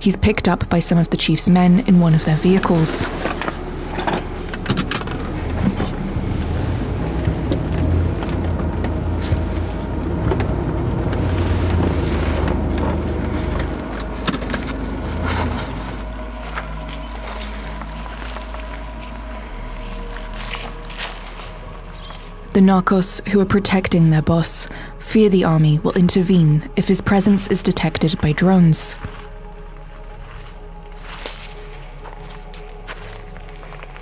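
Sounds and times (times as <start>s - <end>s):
car cabin road rumble: 0.0s - 34.0s
wind and tyre noise: 2.2s - 22.6s.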